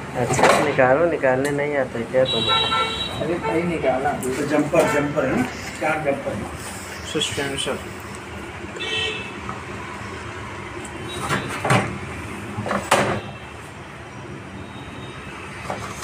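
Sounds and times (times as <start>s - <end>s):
steady background noise: 0.0s - 16.0s
sharp knocks on machine parts: 12.7s - 13.3s.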